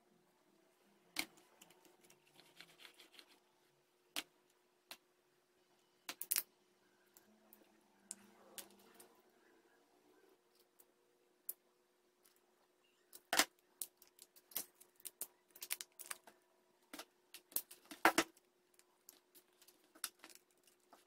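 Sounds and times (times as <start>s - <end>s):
can metal clicking and crinkling: 13.2s - 21.0s.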